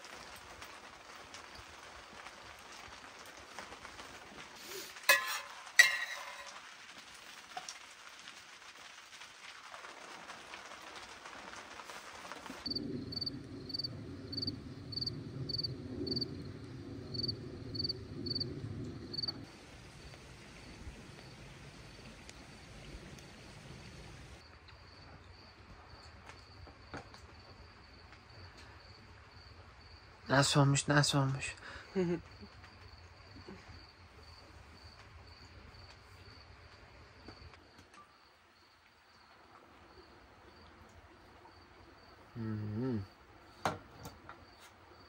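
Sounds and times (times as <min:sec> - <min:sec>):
even hiss: 0:04.4 - 0:06.7
cricket chirping: 0:12.6 - 0:30.6, 0:31.7 - 0:45.0.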